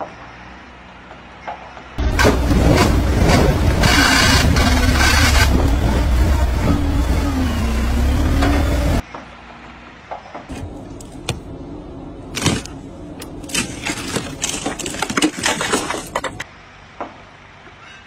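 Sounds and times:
ice cracking: 13.4 - 16.4.

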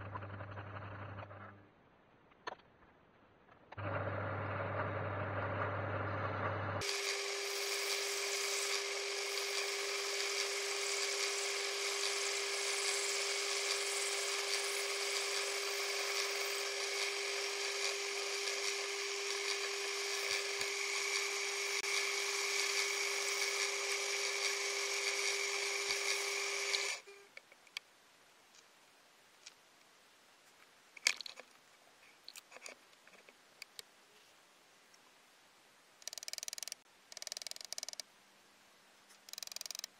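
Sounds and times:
tool grinding glass: 6.8 - 27.0
metal lathe whining: 6.8 - 27.1
faint clicks: 39.1 - 39.9.

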